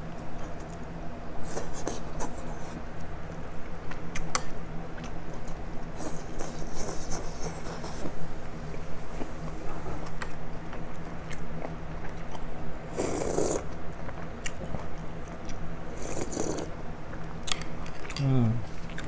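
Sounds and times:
person chewing: 3.9s - 8.1s, 10.0s - 19.0s
person slurping broth: 12.9s - 13.6s, 16.0s - 16.7s.

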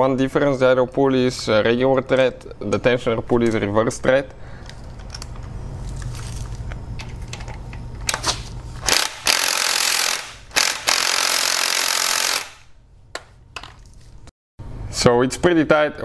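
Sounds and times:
steady low hum: 0.0s - 16.0s
impact wrench hammering: 8.8s - 13.4s.

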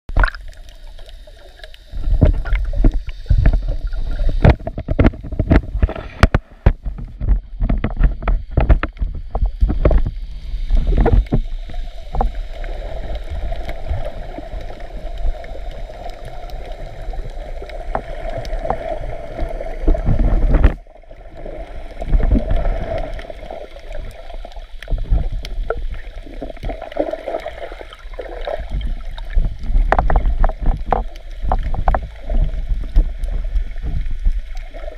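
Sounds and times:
muffled underwater rumble: 0.1s - 34.9s
clicks and knocks: 4.4s - 9.1s.

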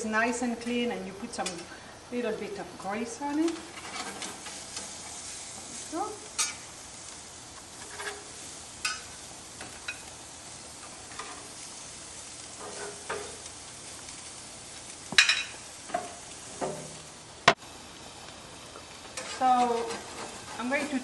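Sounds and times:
patties sizzling on a grill: 0.0s - 21.0s
metal spatula scraping a grate: 3.5s - 5.8s, 6.4s - 6.6s, 7.7s - 10.1s, 12.5s - 13.4s, 19.2s - 21.0s.

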